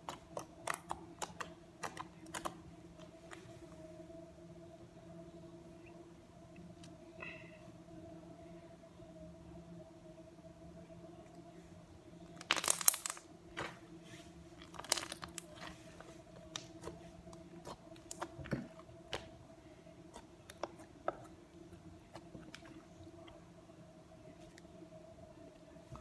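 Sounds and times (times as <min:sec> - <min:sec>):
slime squeezed crackling and popping: 0:12.4 - 0:13.2, 0:14.7 - 0:15.5.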